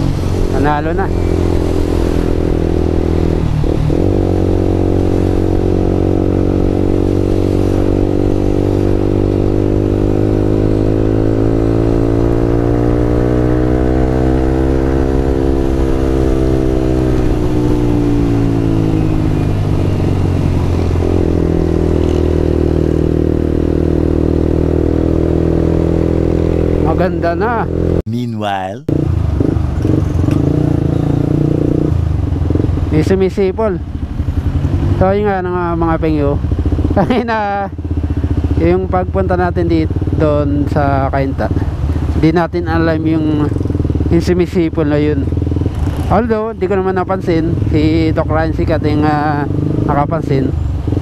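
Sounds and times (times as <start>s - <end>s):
motorcycle engine running: 29.0s - 40.6s, 41.6s - 48.2s.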